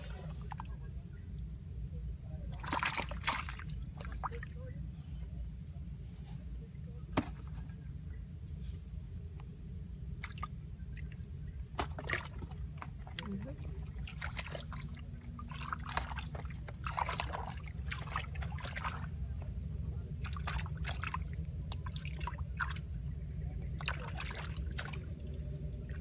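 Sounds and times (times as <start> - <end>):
muddy water splashing and sloshing: 0.0 - 1.4, 2.4 - 4.8, 7.0 - 7.8, 10.1 - 26.0
steady low hum: 0.0 - 26.0.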